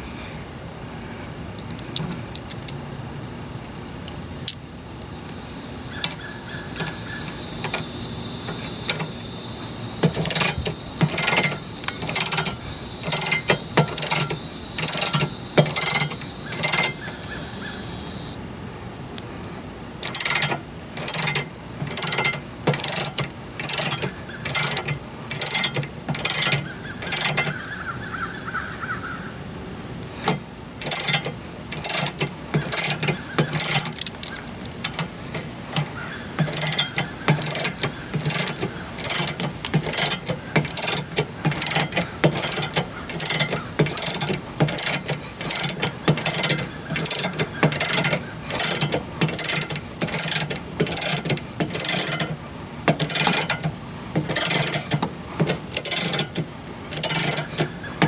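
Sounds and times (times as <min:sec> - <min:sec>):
ratchet handle clicking: 0:05.9 - 0:09.3, 0:10.0 - 0:17.2, 0:20.0 - 0:27.6, 0:30.2 - 0:58.0.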